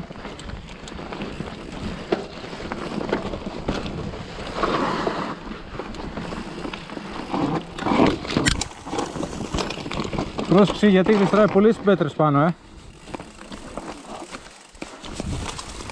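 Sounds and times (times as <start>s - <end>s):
bike clattering: 0.0s - 15.9s
tyres crunching over stones: 0.2s - 15.9s
wind buffeting microphone: 15.0s - 15.9s.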